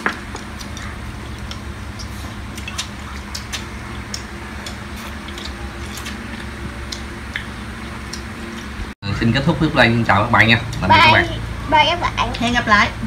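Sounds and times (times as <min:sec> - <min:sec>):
low hum: 0:00.0 - 0:13.0
people eating: 0:00.0 - 0:13.0
chopsticks clicking against bowls: 0:00.4 - 0:07.5.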